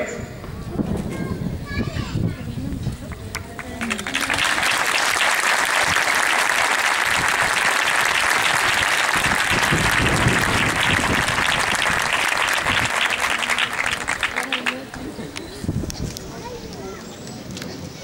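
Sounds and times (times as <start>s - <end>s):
crowd applauding: 3.2s - 15.2s.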